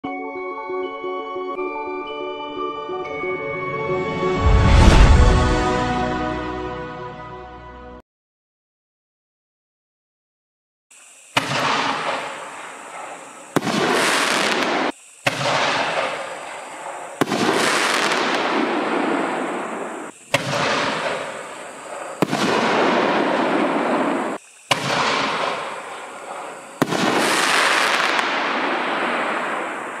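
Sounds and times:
firework bangs with hiss: 0:10.9 - 0:30.0.

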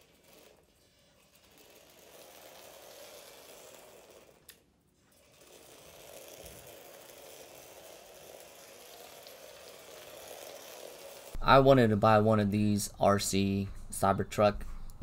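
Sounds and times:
toy car electric motor whir: 0:00.0 - 0:11.4.

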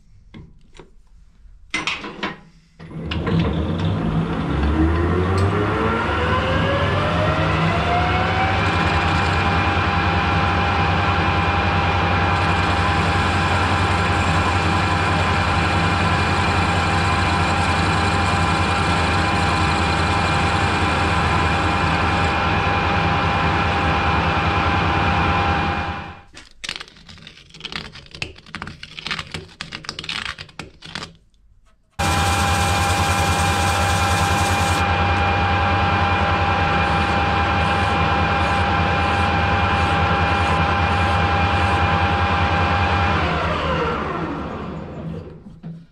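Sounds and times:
metal lathe whining: 0:03.0 - 0:26.1, 0:32.0 - 0:45.3.

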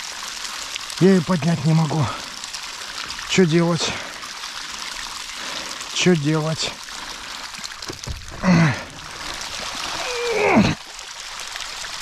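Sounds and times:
water trickling and splashing: 0:00.0 - 0:12.0
man grunting and groaning: 0:08.4 - 0:09.0, 0:10.0 - 0:10.8.

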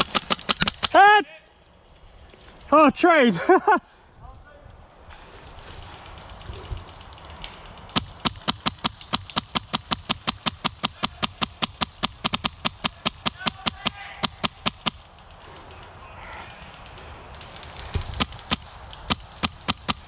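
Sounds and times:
airsoft rifle firing: 0:00.0 - 0:01.0, 0:07.9 - 0:15.2, 0:17.8 - 0:20.0
person calling hit: 0:12.8 - 0:14.7.

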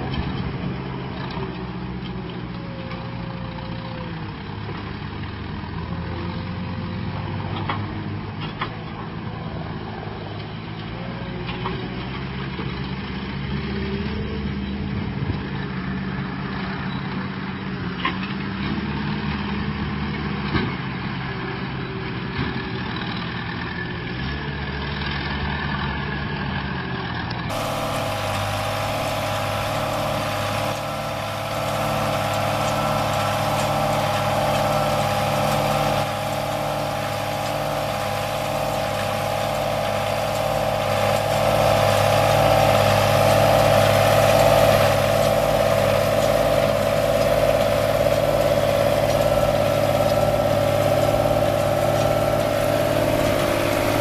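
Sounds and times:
baler machinery noise: 0:00.0 - 0:26.5, 0:27.1 - 0:54.0
tractor engines running: 0:00.0 - 0:54.0.

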